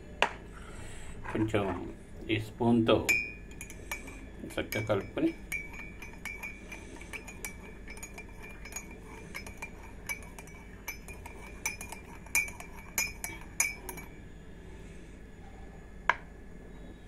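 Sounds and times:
teaspoon clinking in ceramic mug: 3.0 - 14.2.

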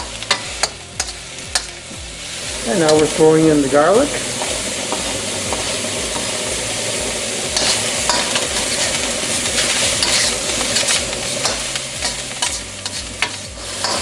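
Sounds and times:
metal spatula scraping a wok: 0.0 - 3.2, 4.2 - 14.0
stir-fry sizzling in a wok: 0.0 - 14.0.

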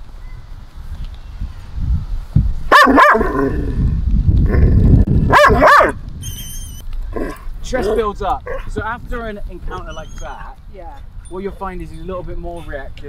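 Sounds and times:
dog barking: 2.7 - 3.4, 5.3 - 6.0.

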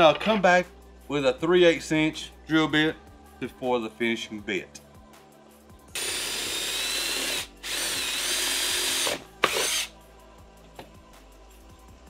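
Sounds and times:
cordless drill motor whining: 6.0 - 9.9.

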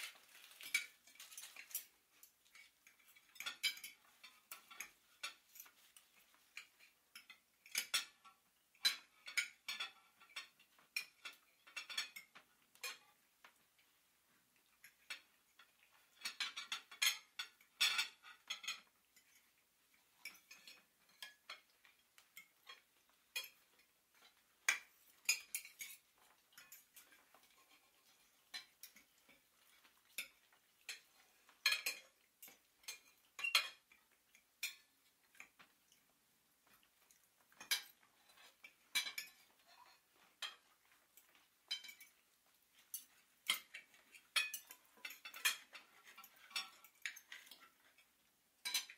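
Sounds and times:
cutlery and plates clinking: 0.0 - 48.9.

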